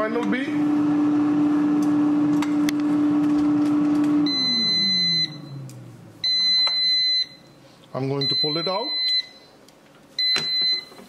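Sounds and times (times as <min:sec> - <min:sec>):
air fryer fan humming: 0:00.0 - 0:08.6
long high-pitched beeps: 0:04.2 - 0:05.6.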